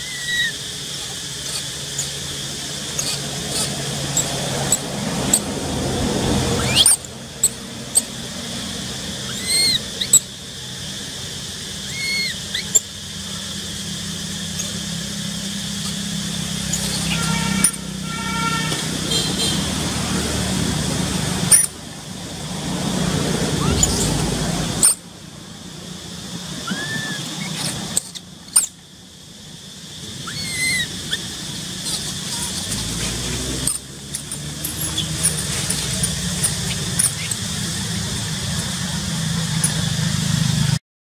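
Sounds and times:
baby monkey squeaking: 0:00.0 - 0:05.6, 0:06.2 - 0:10.9, 0:11.6 - 0:13.4, 0:14.4 - 0:19.5, 0:21.4 - 0:21.8, 0:23.4 - 0:25.0, 0:26.5 - 0:28.8, 0:30.2 - 0:38.8
high-pitched background hum: 0:00.0 - 0:40.8.

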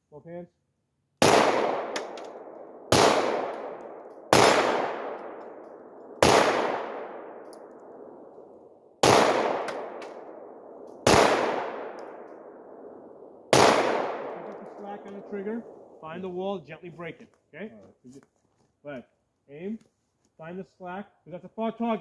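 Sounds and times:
handgun shots echoing: 0:01.2 - 0:08.1, 0:09.0 - 0:10.3, 0:13.5 - 0:15.3.

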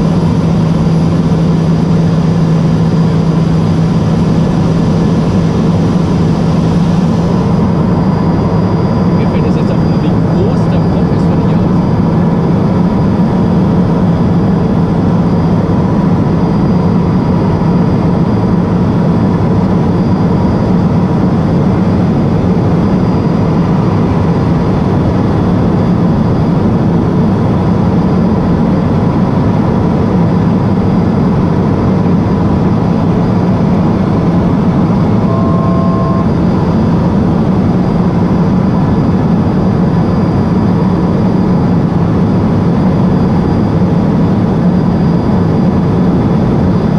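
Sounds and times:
turboprop engine drone: 0:00.0 - 0:46.9
two-pitch electronic beep: 0:35.2 - 0:36.4.

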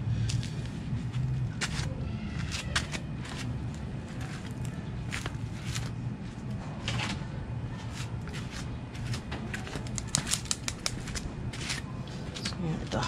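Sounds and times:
low hum: 0:00.0 - 0:02.3
footsteps in slippers on concrete: 0:00.2 - 0:06.5, 0:07.7 - 0:13.0.

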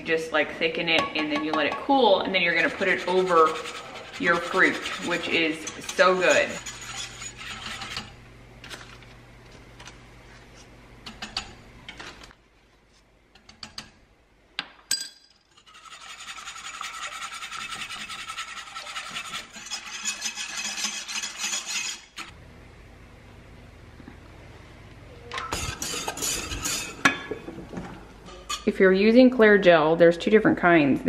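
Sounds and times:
whisk scraping in saucepan: 0:02.3 - 0:08.2, 0:15.6 - 0:22.3, 0:25.6 - 0:27.2.

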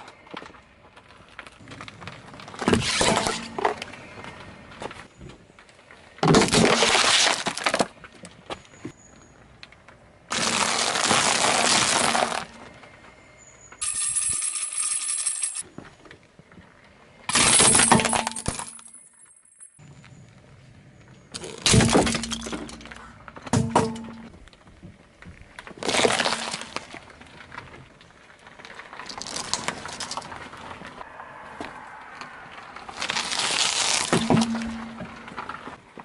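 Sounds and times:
cones cracking under tyre: 0:00.0 - 0:13.8, 0:21.3 - 0:36.0
tyre crushing objects: 0:01.5 - 0:05.2, 0:06.2 - 0:08.7, 0:10.3 - 0:12.6, 0:21.4 - 0:27.8, 0:32.9 - 0:36.0.

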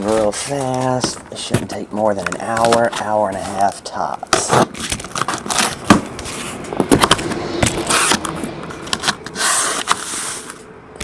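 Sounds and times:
clicks and light knocks: 0:00.0 - 0:03.1.

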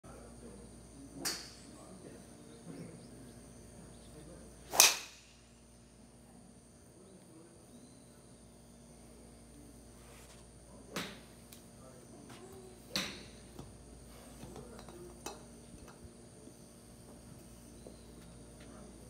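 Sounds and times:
golf club striking ball: 0:04.7 - 0:05.5.

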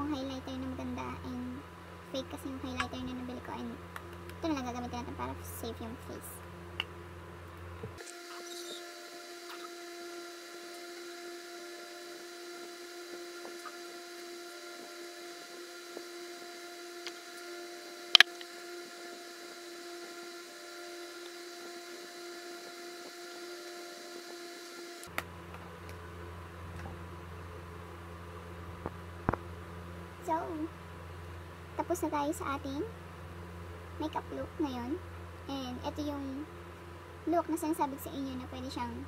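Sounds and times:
lower hum: 0:00.0 - 0:39.0
steady multi-pitch hum: 0:00.0 - 0:39.0
sharp click: 0:18.2 - 0:18.5.

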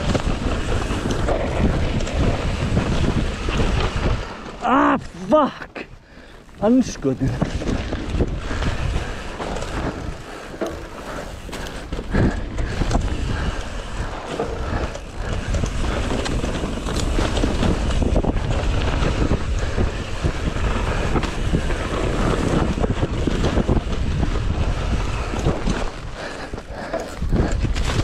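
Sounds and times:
bike knocks and rattles: 0:00.0 - 0:05.1, 0:06.4 - 0:28.0
tyres rumbling on dirt: 0:00.0 - 0:28.0
wind rushing over microphone: 0:00.0 - 0:28.0.

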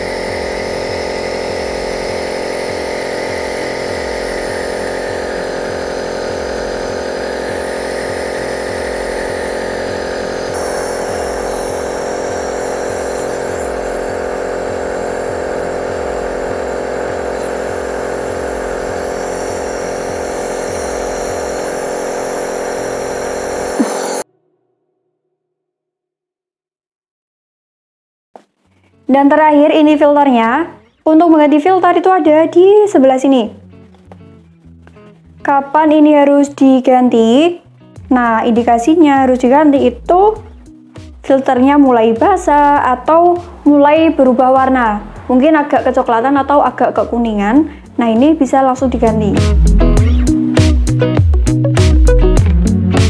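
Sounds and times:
nebulizer compressor humming: 0:00.0 - 0:24.3, 0:38.0 - 0:53.0.

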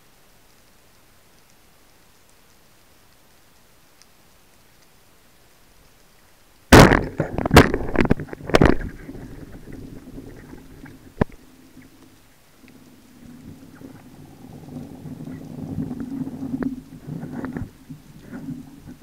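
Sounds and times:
speargun firing underwater: 0:06.7 - 0:09.2
low rumble: 0:08.3 - 0:19.0.

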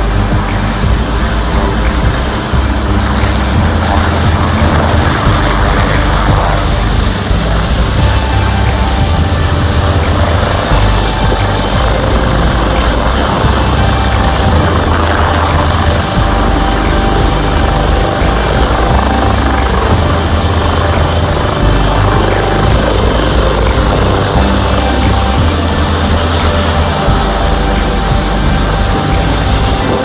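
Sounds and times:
helicopter engine noise: 0:00.0 - 0:30.0
helicopter rotor chop: 0:00.0 - 0:30.0
high-pitched whine: 0:00.0 - 0:30.0.

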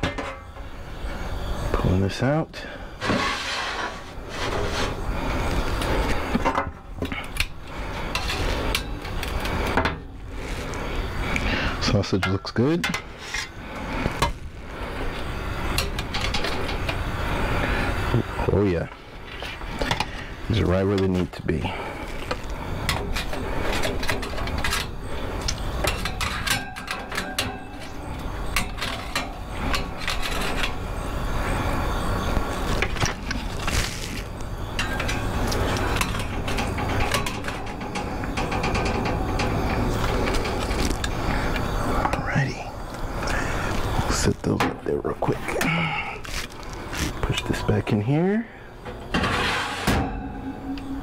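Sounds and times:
steady rushing noise: 0:12.9 - 0:26.5.

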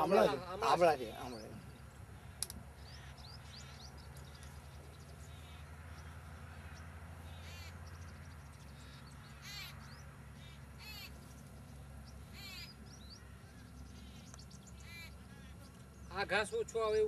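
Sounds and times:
bird calling: 0:00.0 - 0:16.6.

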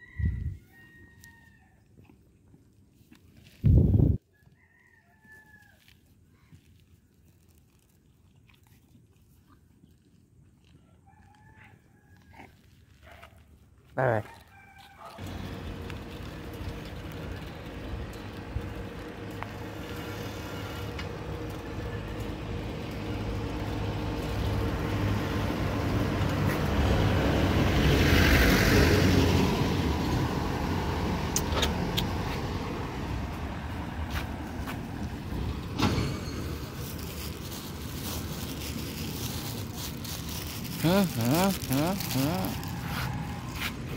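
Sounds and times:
vehicle passing: 0:15.1 - 0:43.9.

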